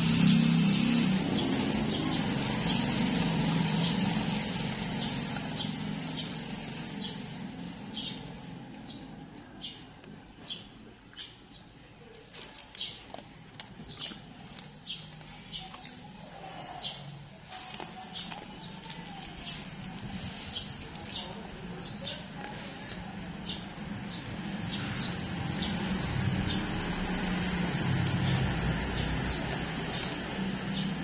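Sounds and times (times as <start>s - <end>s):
low engine hum: 0.0s - 11.0s, 12.9s - 31.0s
bird chirping: 0.0s - 13.1s, 13.8s - 26.8s
dog chewing dry kibble: 12.1s - 23.0s.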